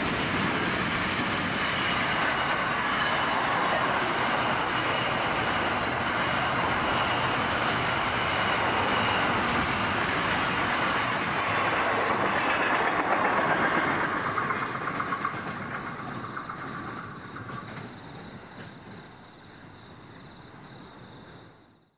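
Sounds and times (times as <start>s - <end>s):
freight train wheels on rails: 0.0s - 21.6s
rhythmic clicking of wheels: 12.3s - 19.1s.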